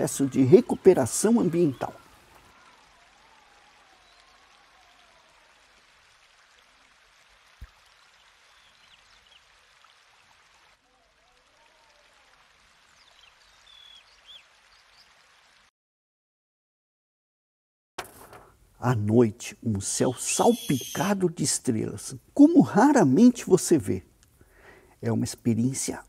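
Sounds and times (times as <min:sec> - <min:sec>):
birds chirping: 0:00.0 - 0:02.5, 0:13.0 - 0:15.0, 0:20.0 - 0:21.2
trickle of running water: 0:03.4 - 0:15.7.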